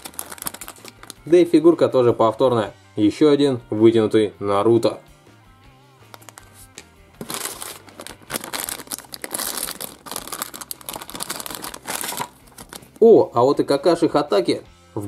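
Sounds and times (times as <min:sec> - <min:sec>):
plastic packet crinkling: 0:00.0 - 0:01.3, 0:06.1 - 0:06.5, 0:07.2 - 0:13.0.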